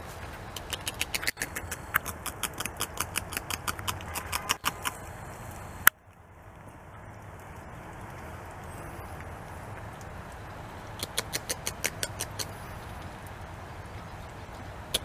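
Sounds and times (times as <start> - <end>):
beaver gnawing bark: 0.0 - 6.0, 7.3 - 13.2.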